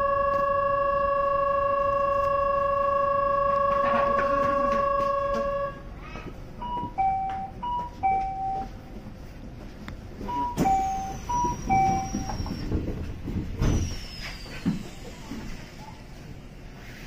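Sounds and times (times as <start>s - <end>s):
two-tone electronic train chime: 0.0s - 5.8s, 6.6s - 8.8s, 10.2s - 12.6s
faint high whine falling in pitch: 0.0s - 5.9s.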